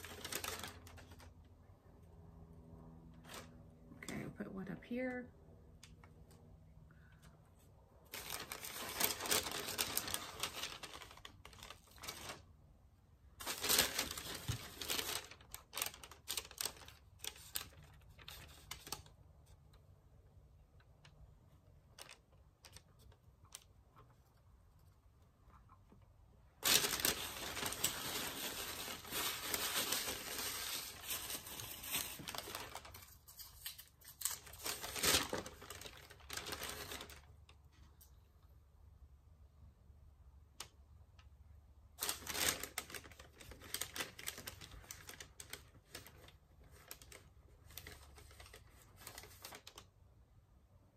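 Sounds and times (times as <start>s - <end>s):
candy packaging rustling: 0.0s - 1.7s, 7.5s - 12.6s, 13.3s - 38.2s, 41.9s - 50.0s.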